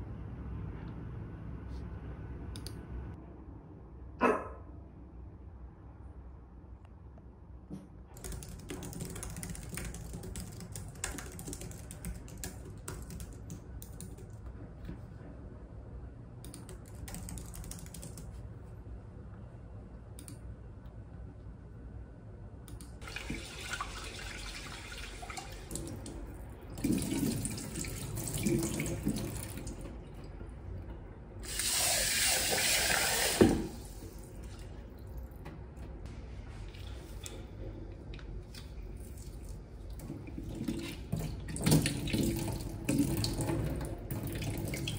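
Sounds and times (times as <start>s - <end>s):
keyboard typing: 8.2s - 14.4s, 16.5s - 18.4s.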